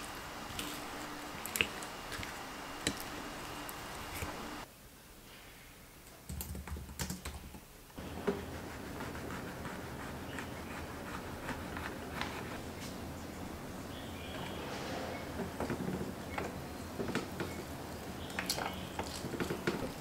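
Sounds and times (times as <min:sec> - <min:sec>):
typing on a laptop keyboard: 0:06.3 - 0:07.6.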